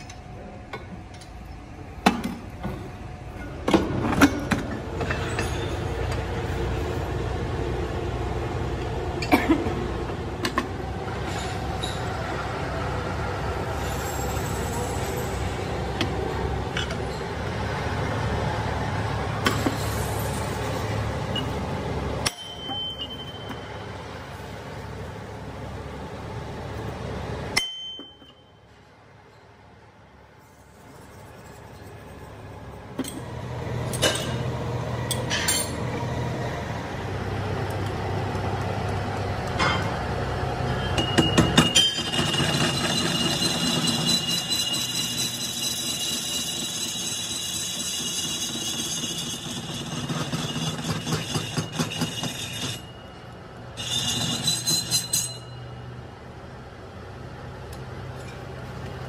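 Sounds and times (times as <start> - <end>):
thin ringing tone: 22.3 - 23.9, 27.6 - 29.6, 40.7 - 55.9
cutting tool scraping metal: 42.0 - 53.0, 53.8 - 55.6.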